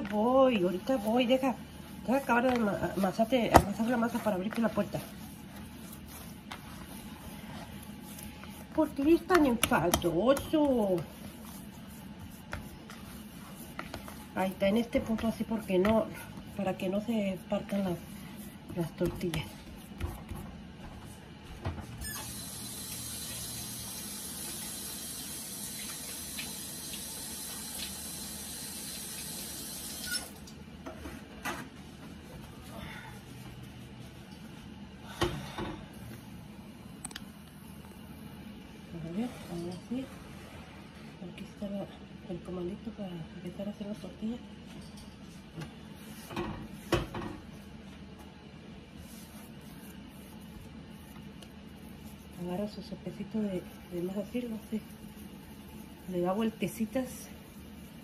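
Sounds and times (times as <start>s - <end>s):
hands rubbing dough: 0.0s - 24.8s, 45.3s - 58.0s.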